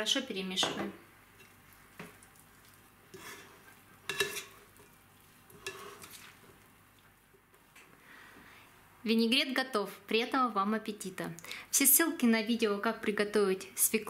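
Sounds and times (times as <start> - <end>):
spoon stirring salad in bowl: 1.3 - 7.9.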